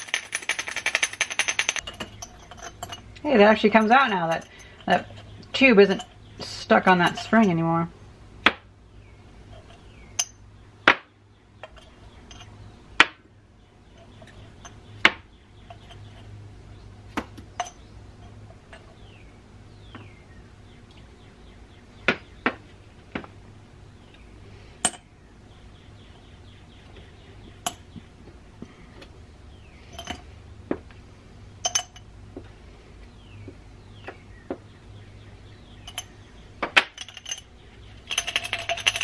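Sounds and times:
tweezers clinking on glass jar: 0.0s - 5.2s, 31.6s - 32.0s, 35.9s - 36.1s, 37.0s - 37.5s, 38.1s - 39.0s.

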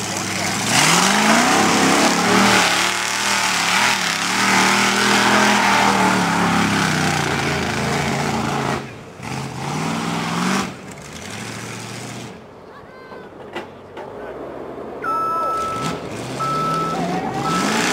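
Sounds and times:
off-road truck engine revving: 0.0s - 12.6s, 13.3s - 17.9s
mud spraying off tyres: 0.1s - 12.2s.

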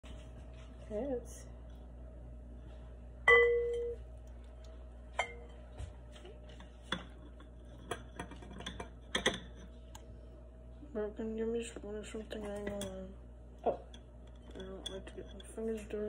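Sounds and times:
ringing hit: 3.3s - 4.0s
kitchen things clinking: 6.5s - 9.7s, 13.8s - 16.0s.

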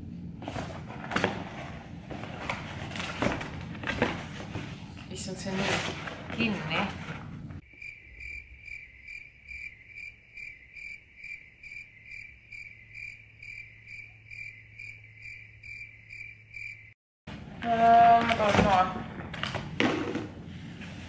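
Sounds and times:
cricket chirping: 7.6s - 17.0s.

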